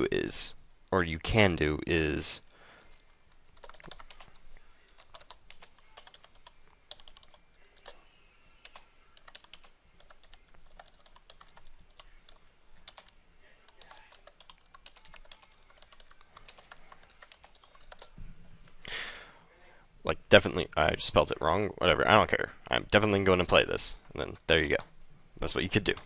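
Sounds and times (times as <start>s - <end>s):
keyboard typing: 3.5s - 8.0s, 8.6s - 18.2s.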